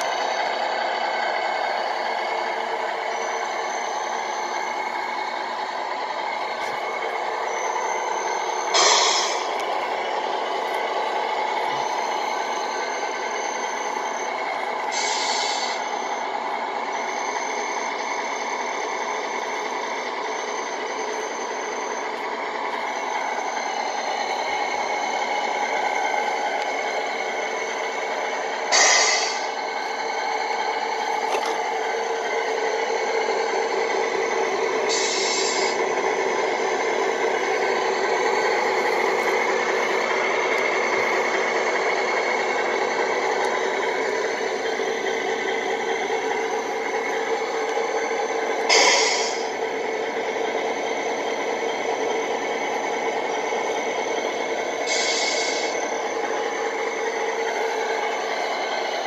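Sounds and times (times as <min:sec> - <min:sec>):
simulated diesel engine through speaker: 0:00.0 - 0:59.0
air-brake hisses: 0:08.7 - 0:09.6, 0:14.9 - 0:15.8, 0:28.7 - 0:29.6, 0:34.9 - 0:35.8, 0:48.7 - 0:49.5, 0:54.8 - 0:55.8.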